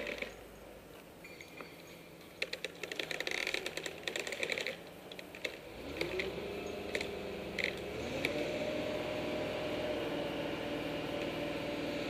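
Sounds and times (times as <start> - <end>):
sharp clicks and crackles: 2.2 - 8.4
crane engine revving: 5.4 - 12.0.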